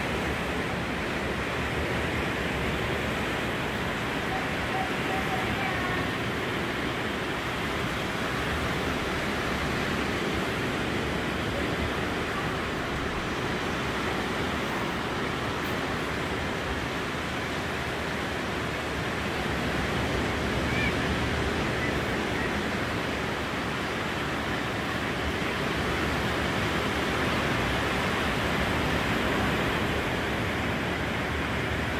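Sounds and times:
surf breaking on beach: 0:00.0 - 0:31.9.

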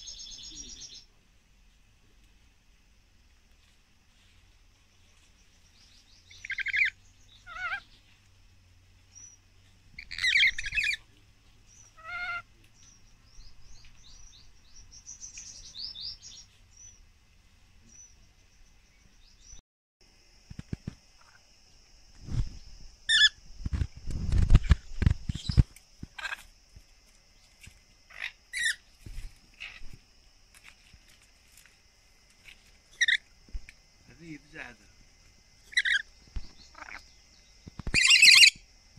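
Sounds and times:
parrots screeching: 0:06.4 - 0:07.9, 0:10.0 - 0:11.0, 0:11.9 - 0:12.5, 0:23.1 - 0:23.3, 0:26.2 - 0:26.4, 0:28.1 - 0:28.8, 0:33.0 - 0:33.2, 0:35.7 - 0:36.0, 0:36.7 - 0:37.0, 0:37.9 - 0:38.6.

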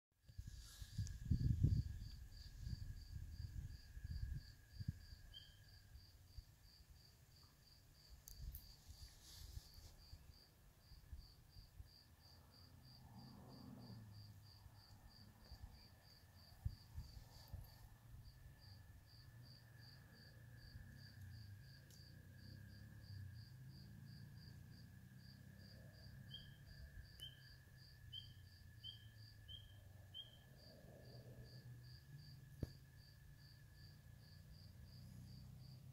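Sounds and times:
frogs peeping: 0:27.2 - 0:30.5.

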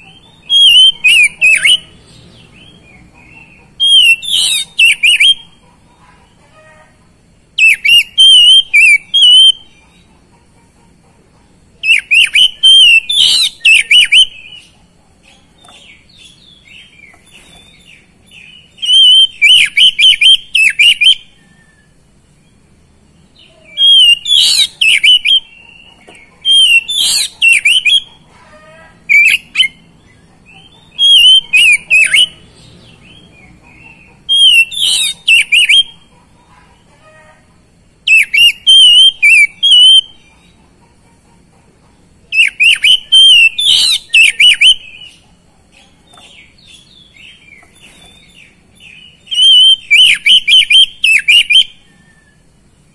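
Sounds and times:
bird song with rapid whistles: 0:00.0 - 0:05.6, 0:07.6 - 0:09.8, 0:11.8 - 0:14.8, 0:15.9 - 0:22.6, 0:23.6 - 0:28.2, 0:29.1 - 0:29.9, 0:30.6 - 0:36.1, 0:38.0 - 0:40.3, 0:42.3 - 0:45.2, 0:46.3 - 0:52.5.

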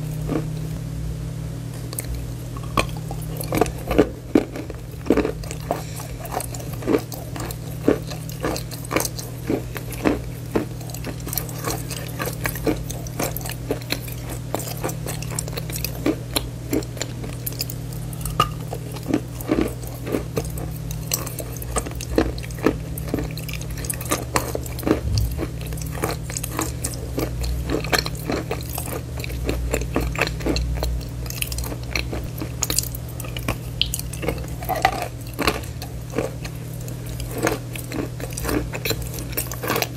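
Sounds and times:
low hum: 0:00.0 - 0:27.6
chewing and biting chalk: 0:01.9 - 0:39.9.

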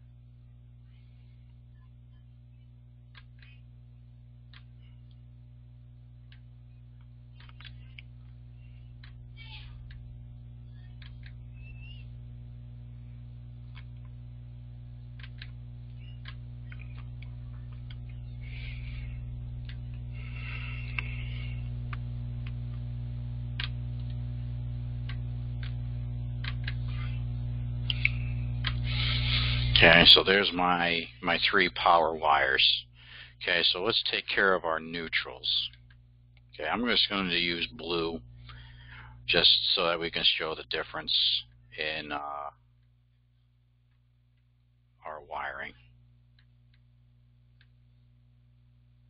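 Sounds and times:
electrical mains hum: 0:00.0 - 0:49.0
faint clicks: 0:06.2 - 0:08.4, 0:09.0 - 0:09.2, 0:10.8 - 0:11.4, 0:19.4 - 0:20.1, 0:23.5 - 0:24.2, 0:24.9 - 0:27.0.

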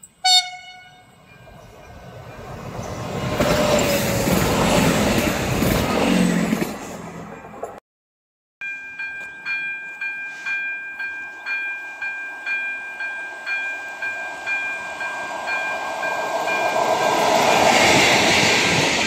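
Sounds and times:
level-crossing warning bell ringing: 0:00.0 - 0:03.9, 0:08.6 - 0:18.9
diesel railcar running: 0:00.2 - 0:07.8.

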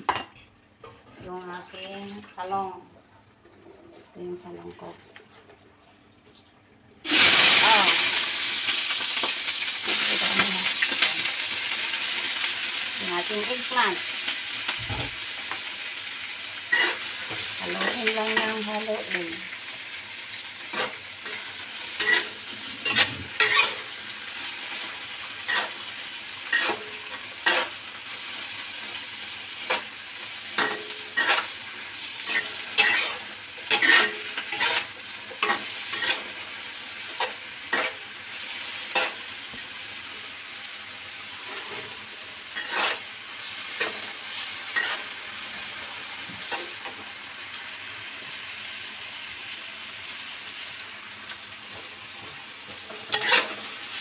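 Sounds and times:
vegetables sizzling in a wok: 0:07.0 - 0:54.0
metal spatula scraping a pan: 0:16.7 - 0:18.7, 0:20.6 - 0:29.0, 0:30.5 - 0:39.3, 0:41.4 - 0:45.2, 0:52.7 - 0:53.9.

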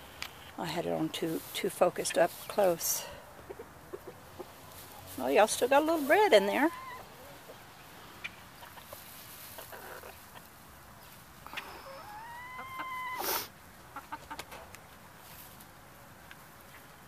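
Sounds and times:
chickens feeding: 0:00.0 - 0:17.0
hen call: 0:11.5 - 0:13.5.

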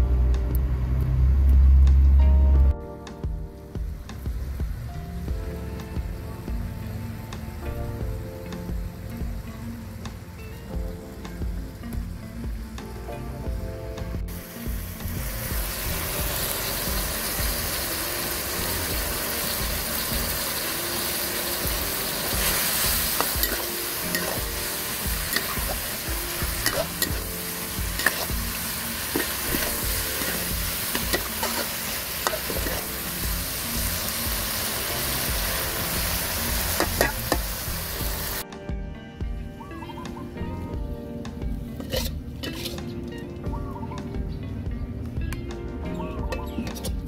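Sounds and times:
meat and vegetables sizzling in wok: 0:03.7 - 0:38.5, 0:41.5 - 0:43.1
metal spatula scraping a pan: 0:22.4 - 0:28.4, 0:29.0 - 0:33.0, 0:41.8 - 0:43.0.

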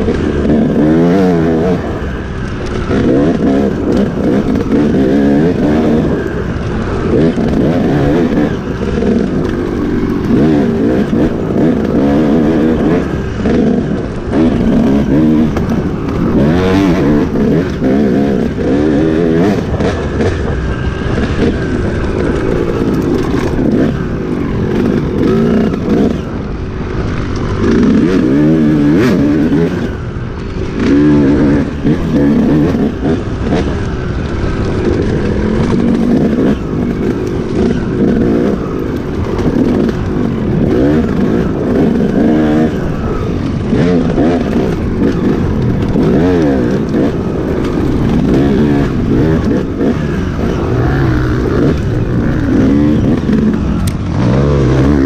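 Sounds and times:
motorcycle engine revving: 0:00.0 - 0:55.0.

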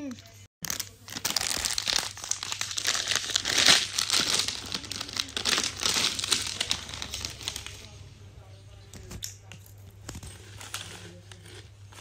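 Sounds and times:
plastic snack packet crinkling: 0:00.6 - 0:07.9.

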